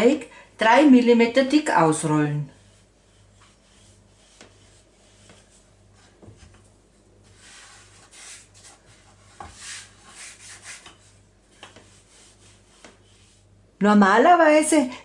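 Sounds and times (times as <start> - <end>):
rolling pin rubbing dough: 1.1 - 13.7.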